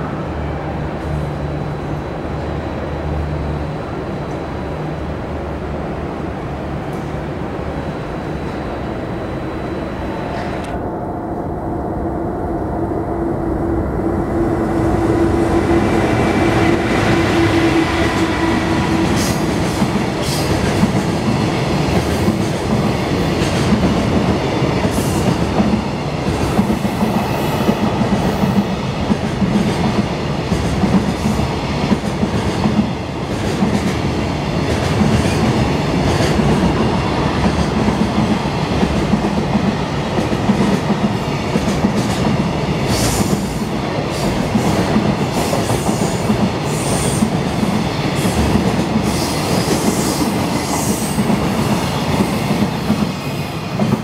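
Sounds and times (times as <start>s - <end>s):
freight train rumbling past: 0.0s - 54.0s.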